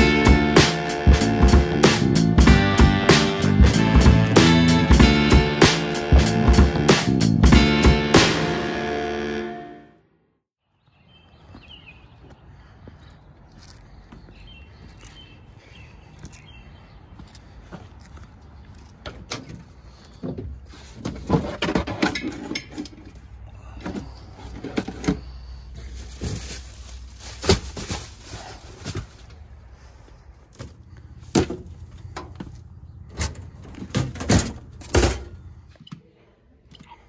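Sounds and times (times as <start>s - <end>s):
gear knocking and rattling in van: 30.6s - 35.4s.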